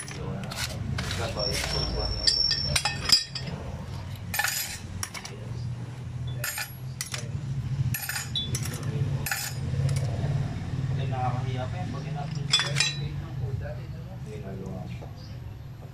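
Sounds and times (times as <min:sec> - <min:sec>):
metal plates clinking: 0:00.0 - 0:05.4, 0:06.3 - 0:07.3, 0:07.9 - 0:10.1, 0:12.2 - 0:13.2.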